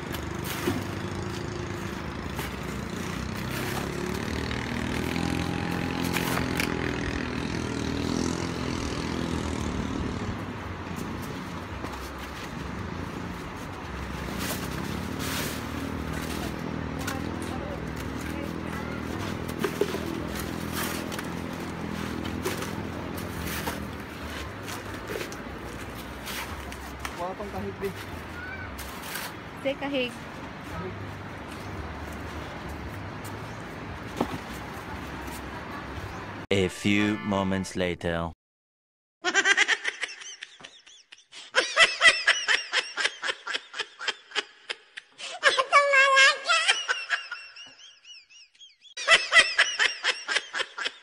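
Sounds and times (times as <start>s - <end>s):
knocks and scrapes: 19.2s - 27.2s
high-pitched laughter: 39.2s - 51.0s.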